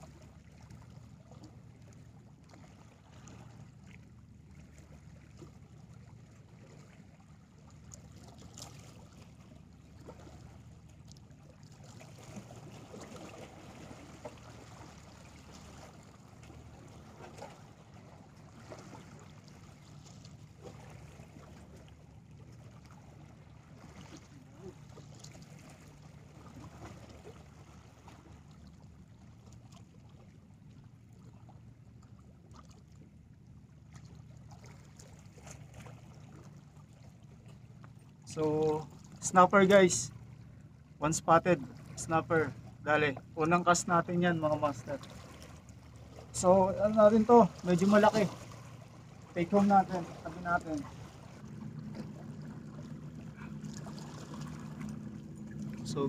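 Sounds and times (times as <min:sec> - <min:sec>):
low steady rumble: 0:00.0 - 0:56.0
small waves lapping on rocks: 0:00.0 - 0:56.0.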